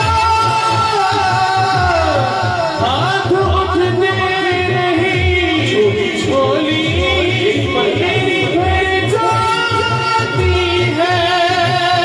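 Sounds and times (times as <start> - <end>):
man singing devotional song: 0.0 - 12.0
pulsing low beat: 1.4 - 10.7.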